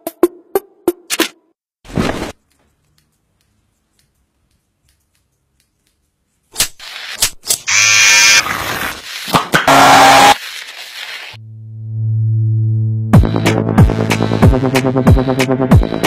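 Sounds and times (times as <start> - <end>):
electric hair clipper buzzing: 7.7 - 8.6, 9.7 - 10.4.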